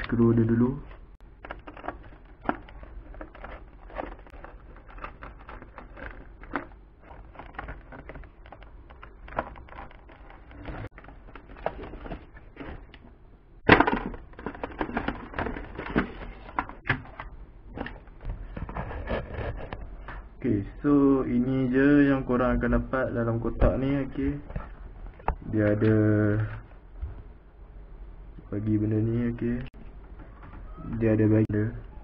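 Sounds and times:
cardboard rustling and plastic clattering: 1.3s - 13.1s, 13.7s - 20.2s.

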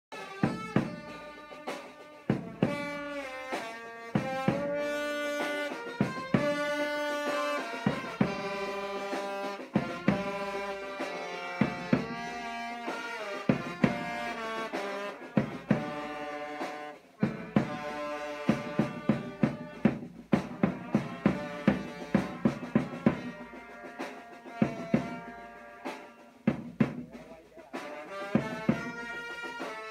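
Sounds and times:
brass band playing slow melody: 0.1s - 29.9s
drum beats: 0.1s - 29.9s.

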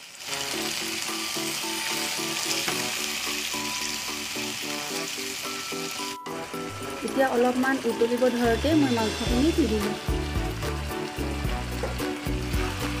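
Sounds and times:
vegetables sizzling in a wok: 0.0s - 13.0s
background music with quick beat: 6.2s - 13.0s.

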